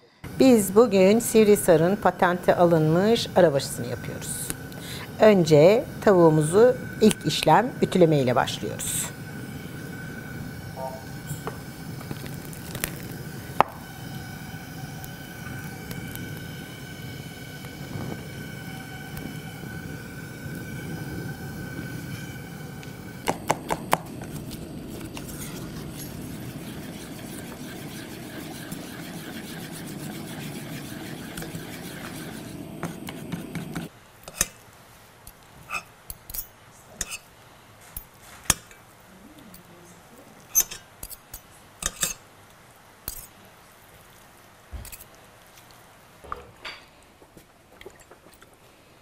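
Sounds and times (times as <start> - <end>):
gas torch running: 0.0 - 33.9.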